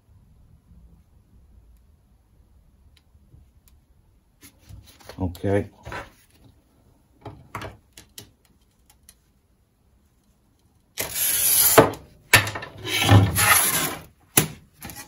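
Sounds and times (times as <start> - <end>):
glass cutter scoring glass: 11.0 - 12.0, 12.8 - 14.1.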